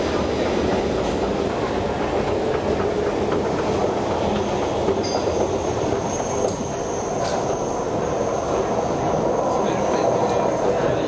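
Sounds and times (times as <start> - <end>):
train rumbling: 0.0 - 11.0.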